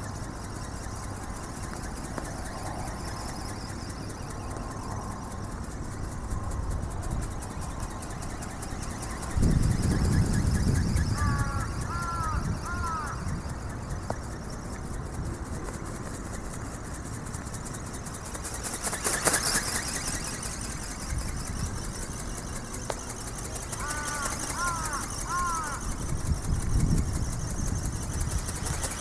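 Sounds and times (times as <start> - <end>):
steady outdoor noise: 0.0 - 29.0
bird calling: 8.1 - 14.6, 23.5 - 26.0.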